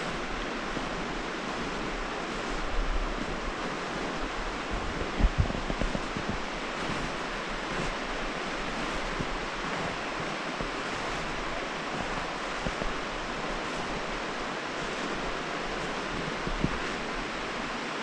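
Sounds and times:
river water rushing: 0.0s - 18.0s
wind rumble on microphone: 0.0s - 18.0s.

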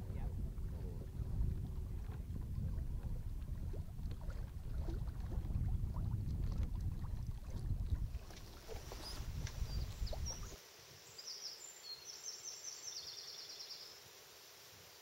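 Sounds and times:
water lapping against hull: 0.0s - 10.6s
wind on microphone: 0.0s - 10.6s.

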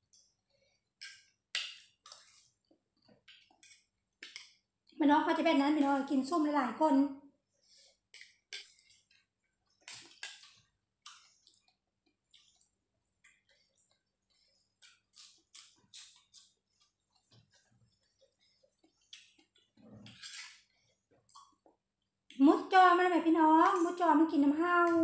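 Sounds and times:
chewing food: 0.1s - 5.0s, 7.6s - 22.4s.

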